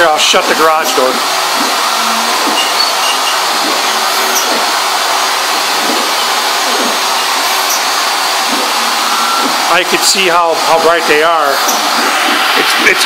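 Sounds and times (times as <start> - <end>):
stepper motors whining: 0.0 - 13.0
router motor whir: 0.5 - 10.0.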